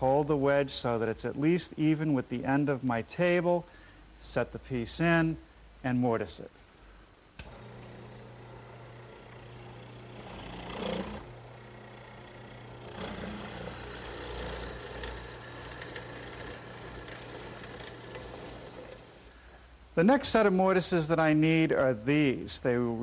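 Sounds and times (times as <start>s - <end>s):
chisel boring into wood: 7.4s - 19.2s
mortiser motor hum: 7.4s - 19.2s.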